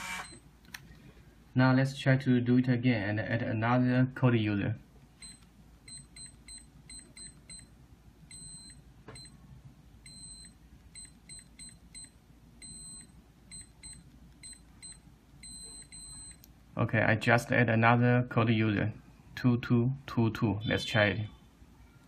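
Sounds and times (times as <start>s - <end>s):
keypad beeps: 5.2s - 7.7s, 8.3s - 9.4s, 10.0s - 16.5s
long beeps: 10.0s - 16.4s.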